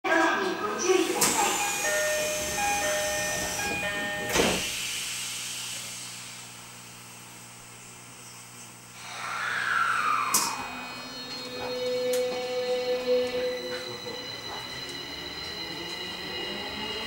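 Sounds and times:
subway doors thump and hiss: 0:00.8 - 0:06.8, 0:10.2 - 0:10.7.

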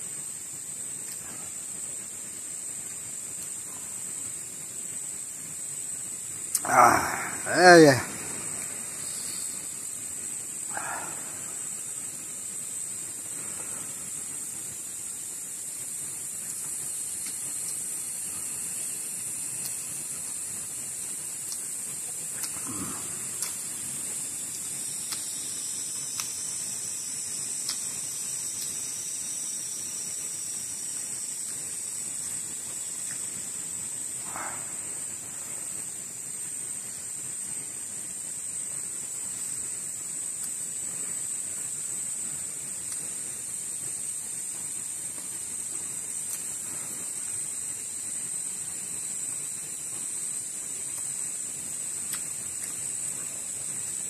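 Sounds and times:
high-pitched insect drone: 0:00.0 - 0:54.0
faint sharp clicks: 0:21.4 - 0:21.7, 0:23.4 - 0:23.6, 0:52.1 - 0:52.8.

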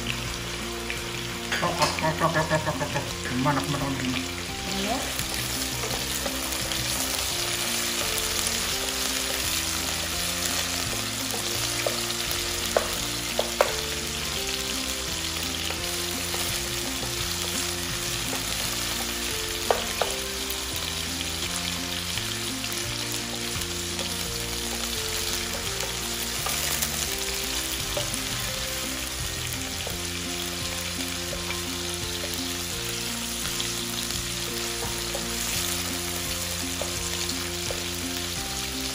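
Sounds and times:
food sizzling in hot oil: 0:00.0 - 0:38.9
wooden spoon stirring: 0:05.3 - 0:14.0
spoon knocking on pot: 0:10.9 - 0:14.0, 0:18.3 - 0:20.2.

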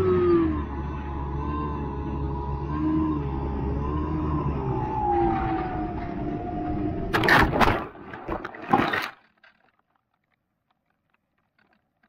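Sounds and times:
faint motor hum: 0:00.0 - 0:07.2.

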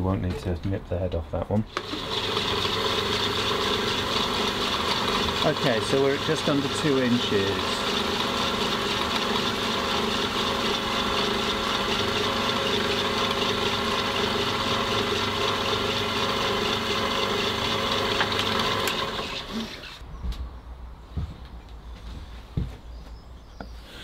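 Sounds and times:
drill press boring wood: 0:01.7 - 0:20.0.

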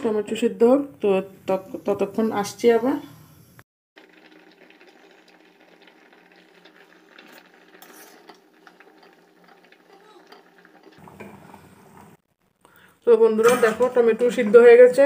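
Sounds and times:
water bubbling at a boil: 0:04.0 - 0:12.3.

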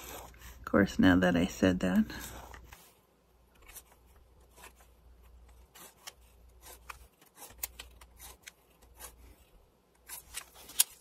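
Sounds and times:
pen scratching on paper: 0:03.6 - 0:09.4.

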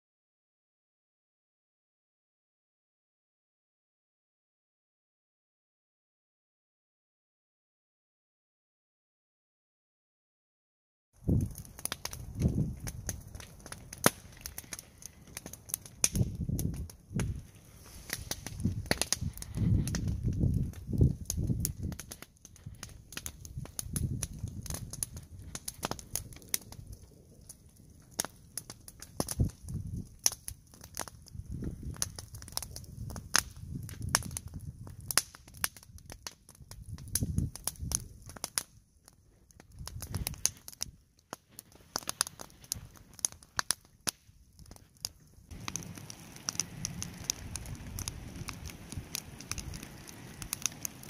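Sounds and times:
campfire crackling and popping: 0:11.2 - 0:51.0.

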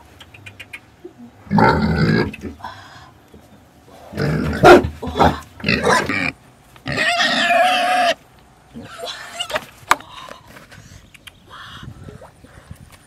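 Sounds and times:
pig grunting: 0:01.5 - 0:02.6, 0:03.9 - 0:08.2
pig squealing: 0:04.1 - 0:08.2.

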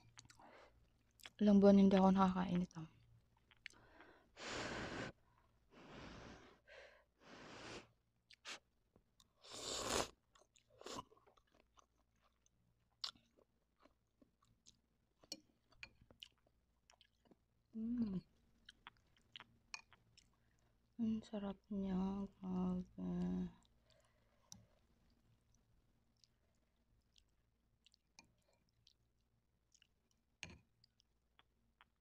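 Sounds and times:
chewing with mouth clicks: 0:00.0 - 0:01.4, 0:03.4 - 0:03.8, 0:10.2 - 0:17.5, 0:18.6 - 0:20.7, 0:26.1 - 0:32.0
slurping noodles: 0:09.4 - 0:10.2.

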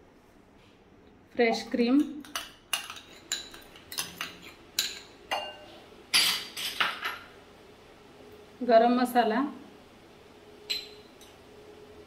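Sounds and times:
spoon clinking against glass bowl: 0:01.6 - 0:06.4, 0:10.7 - 0:11.3.

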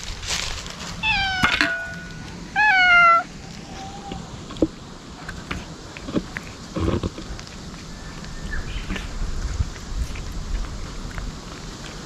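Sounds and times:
cat meowing: 0:01.0 - 0:04.3.

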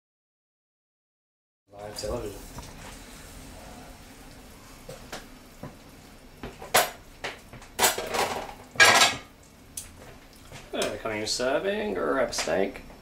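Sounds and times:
metal utensils clattering on plate: 0:07.8 - 0:09.3.

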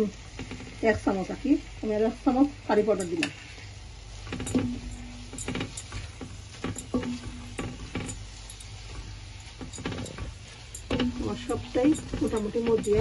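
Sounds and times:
faint sizzle of frying spices: 0:00.0 - 0:13.0
spatula scraping a frying pan: 0:02.9 - 0:13.0.

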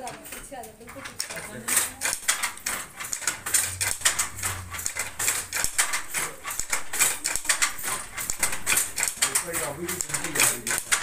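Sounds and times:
wooden loom clacking: 0:00.0 - 0:11.0.

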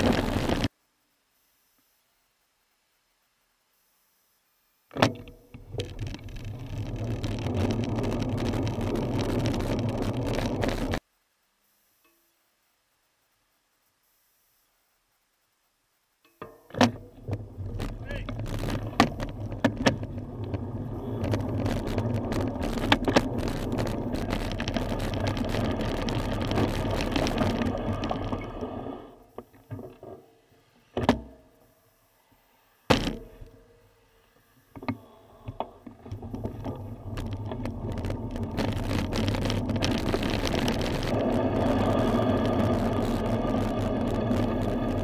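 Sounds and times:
bicycle road rumble: 0:00.0 - 0:00.7, 0:05.0 - 0:11.0, 0:16.8 - 0:45.0
wind noise on microphone: 0:00.0 - 0:00.7, 0:05.0 - 0:11.0, 0:17.0 - 0:29.2, 0:35.5 - 0:45.0.

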